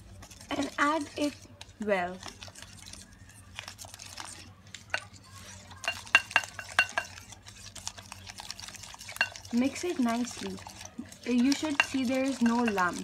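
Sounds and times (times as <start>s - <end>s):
whisk tapping glass bowl: 4.9s - 13.0s.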